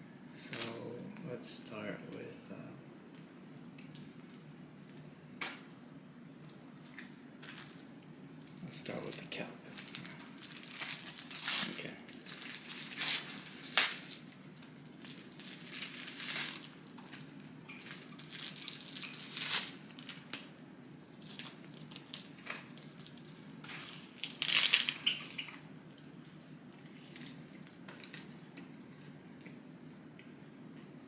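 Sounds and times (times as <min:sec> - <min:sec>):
plastic wrapper crinkling and tearing: 0:06.8 - 0:20.5, 0:21.1 - 0:29.0.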